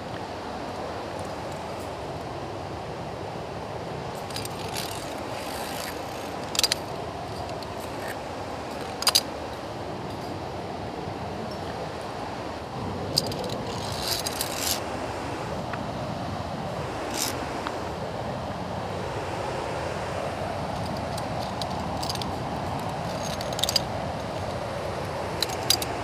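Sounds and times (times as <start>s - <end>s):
waterfall rushing: 0.0s - 23.2s, 23.8s - 26.0s
carabiners clinking on metal: 4.2s - 9.3s, 13.1s - 14.8s, 17.0s - 17.4s, 20.8s - 24.5s, 25.4s - 26.0s.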